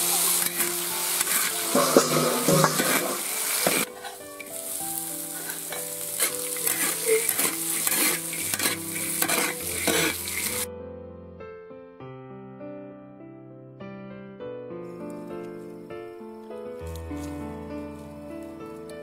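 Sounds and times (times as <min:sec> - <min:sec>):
metal spatula scraping wok: 0:00.0 - 0:10.7
peanuts sizzling in oil: 0:00.0 - 0:10.7.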